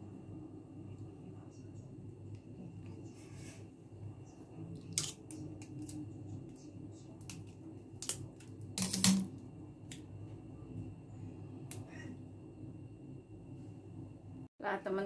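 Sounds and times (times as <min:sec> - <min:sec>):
hard shell clicking and cracking: 0:08.0 - 0:09.3.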